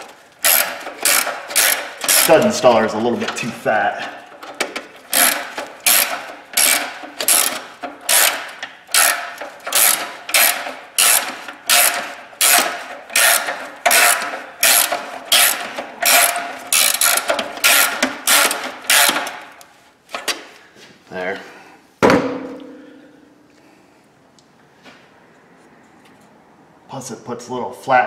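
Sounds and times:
ratchet wrench clicking: 0:00.4 - 0:02.5, 0:05.0 - 0:19.3.

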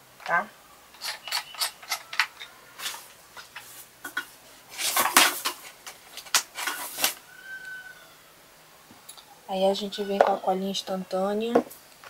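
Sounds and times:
clatter of tools: 0:01.0 - 0:07.2
small hard objects clicking: 0:01.0 - 0:07.2.

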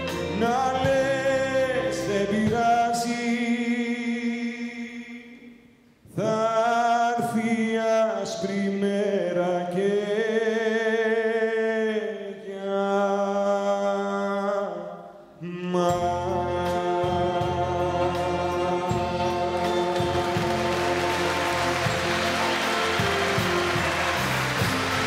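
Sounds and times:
man singing with vibrato: 0:00.0 - 0:25.0
string orchestra: 0:17.7 - 0:25.0
applause: 0:20.0 - 0:25.0.

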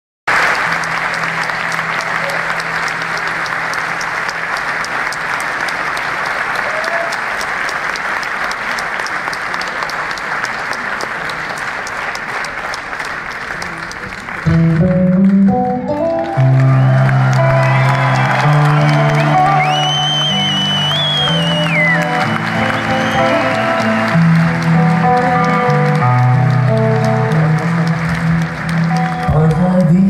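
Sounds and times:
audience applauding: 0:00.3 - 0:30.0
band music: 0:13.7 - 0:30.0.

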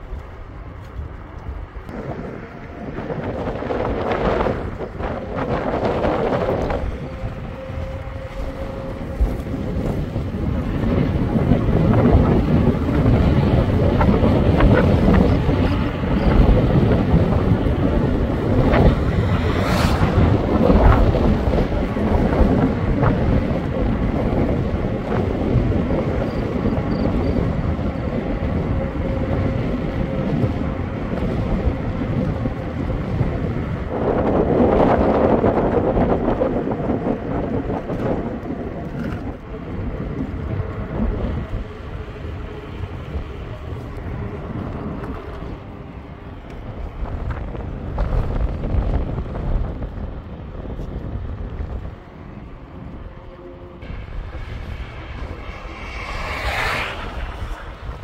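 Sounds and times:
low rumble: 0:00.0 - 0:36.4, 0:37.5 - 0:58.0
wind buffeting microphone: 0:00.0 - 0:58.0.

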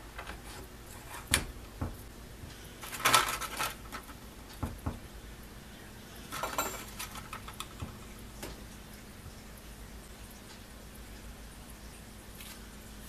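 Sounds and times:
small metal parts clinking: 0:06.3 - 0:07.7.

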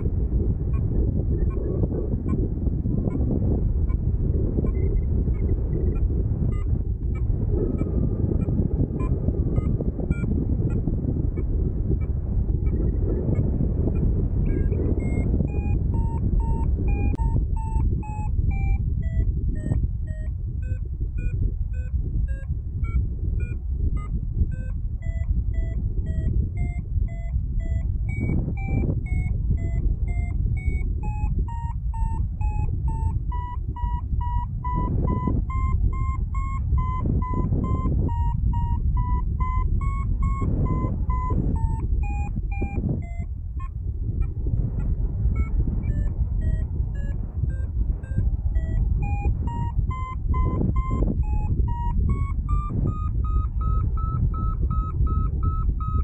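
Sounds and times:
variometer beeping: 0:00.0 - 0:56.0
wind rushing over microphone: 0:00.0 - 0:56.0.

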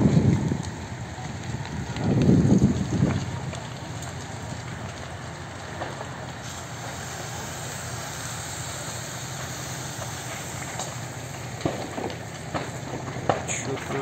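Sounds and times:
engine humming: 0:00.0 - 0:14.0
hose jet hissing: 0:06.4 - 0:11.2.

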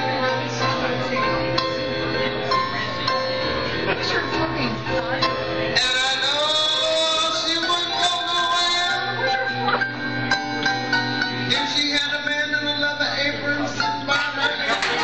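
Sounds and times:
live band music: 0:00.0 - 0:15.0
person singing: 0:05.6 - 0:09.9, 0:11.4 - 0:15.0.

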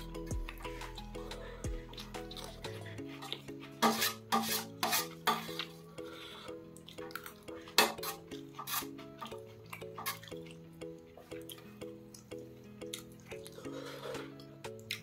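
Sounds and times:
soft background music: 0:00.0 - 0:15.0
metal spoon scraping steel plate: 0:03.3 - 0:05.8, 0:07.8 - 0:08.9.

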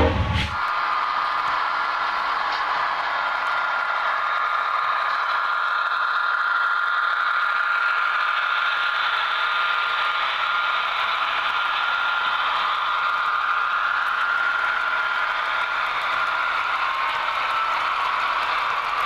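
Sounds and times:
high whine: 0:00.0 - 0:00.7
model train wheels rattling: 0:00.0 - 0:19.0.

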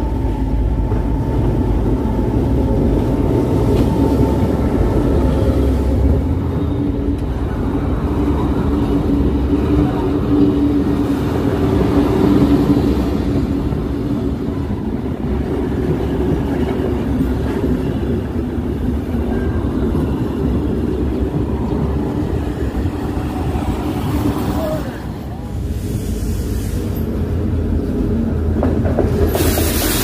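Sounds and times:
train coaches rolling past: 0:00.0 - 0:30.0.

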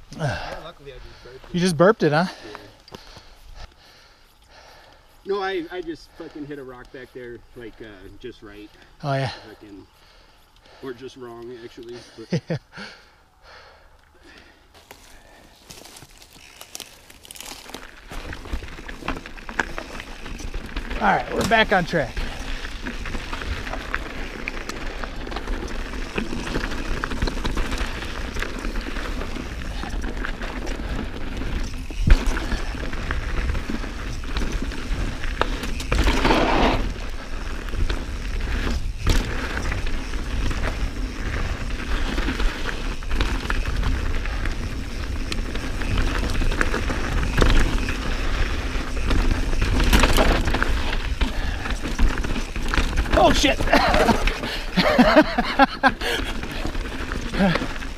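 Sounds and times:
bike tyres rolling on trail: 0:00.0 - 0:57.9
bike rattles and knocks: 0:14.8 - 0:57.9.

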